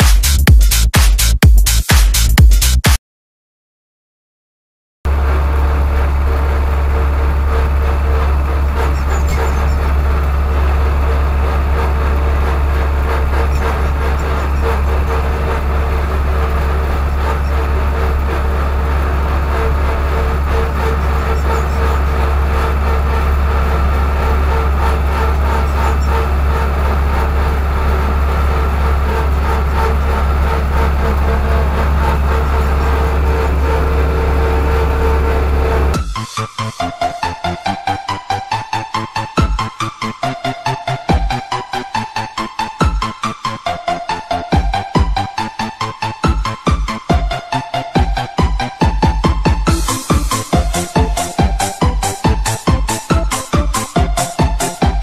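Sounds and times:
tractor diesel engine running: 5.1s - 36.0s, 49.6s - 55.0s.

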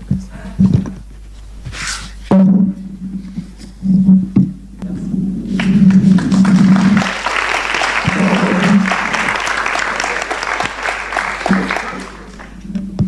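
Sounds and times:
audience applauding: 5.5s - 12.7s.

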